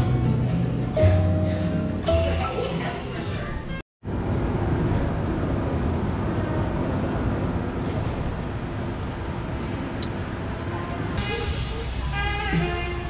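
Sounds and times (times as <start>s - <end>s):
background music: 0.0s - 3.8s, 11.2s - 13.0s
low traffic rumble: 0.0s - 13.0s.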